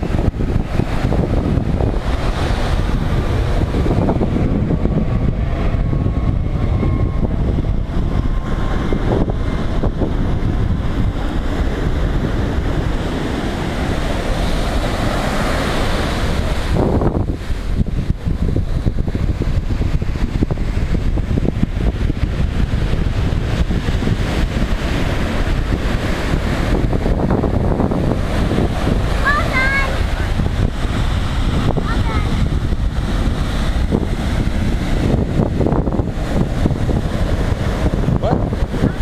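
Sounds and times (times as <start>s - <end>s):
ocean surf breaking: 0.0s - 5.8s, 7.8s - 39.0s
wind buffeting microphone: 0.0s - 39.0s.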